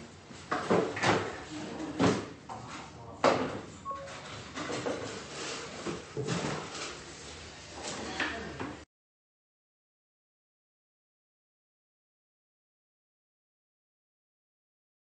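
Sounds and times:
brief chime: 3.9s - 4.2s.

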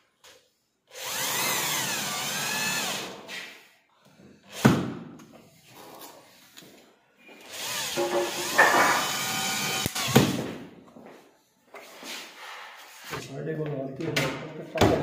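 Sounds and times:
cordless drill motor whine: 1.0s - 3.1s.

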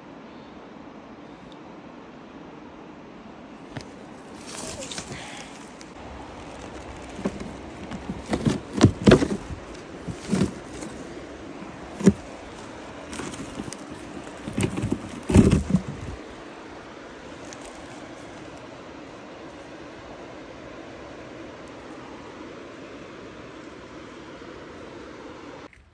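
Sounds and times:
twigs and charred wood cracking: 3.7s - 16.3s, 17.3s - 18.7s.

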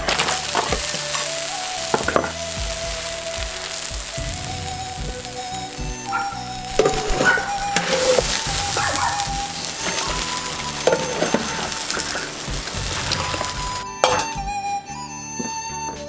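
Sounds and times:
water boiling and bubbling: 0.0s - 13.8s
soft background music: 0.0s - 16.0s
strainer scraping and knocking wok: 4.9s - 14.3s.

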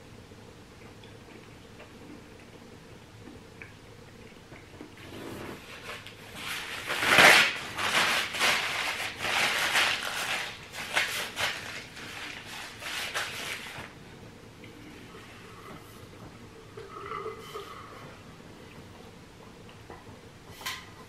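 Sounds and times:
paper towel crumpling: 5.2s - 14.0s.

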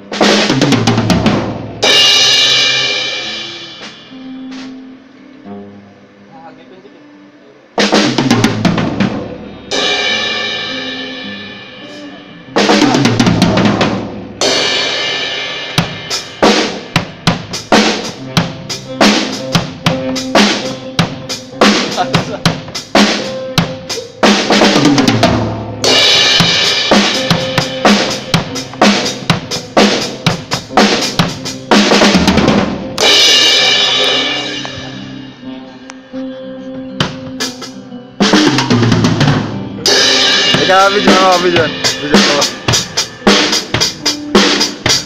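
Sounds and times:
bass drum: 0.0s - 1.9s, 7.8s - 9.6s, 12.6s - 14.4s, 23.6s - 35.1s, 40.4s - 45.0s
cymbal crashes: 0.2s - 4.7s, 7.9s - 22.3s, 25.2s - 35.5s, 39.3s - 45.0s
snare drum and rimshots: 40.2s - 45.0s.

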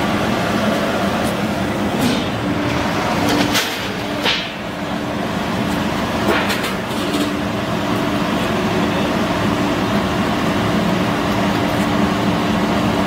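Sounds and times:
roasting machine humming: 0.0s - 13.0s.

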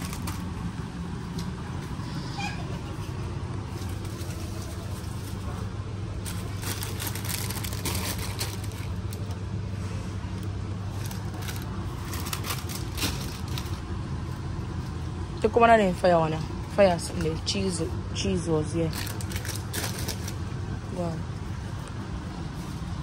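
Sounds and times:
plastic bags crinkling: 0.0s - 1.6s, 3.6s - 9.5s, 10.4s - 14.1s, 18.8s - 20.6s
low background hum: 0.0s - 23.0s.

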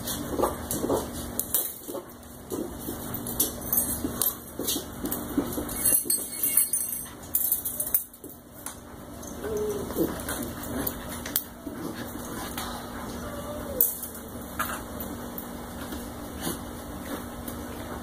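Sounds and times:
wire pen clinking and rattling: 3.4s - 8.3s.

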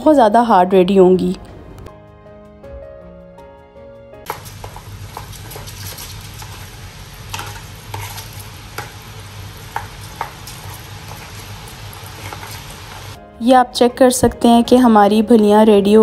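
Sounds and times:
batter sizzling in hot oil: 4.2s - 13.2s.

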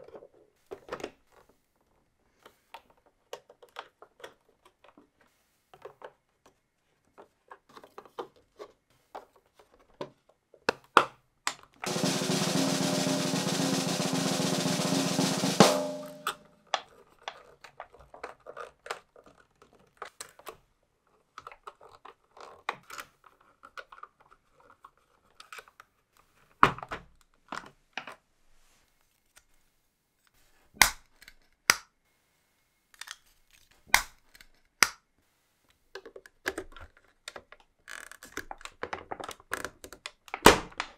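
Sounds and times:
sharp knock: 11.9s - 16.4s
small plastic parts clicking: 32.9s - 35.0s, 35.9s - 40.9s.

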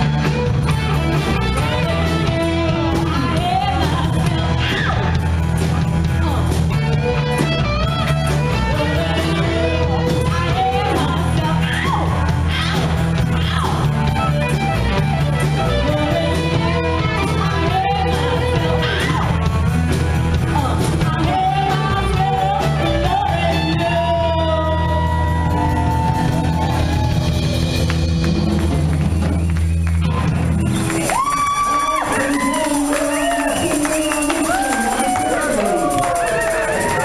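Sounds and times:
bass guitar: 0.0s - 37.0s
drum kit beat: 0.0s - 37.0s
electric guitars: 0.0s - 37.0s
woman singing lead: 1.5s - 5.2s, 8.4s - 14.0s, 15.6s - 19.5s, 20.4s - 26.8s.

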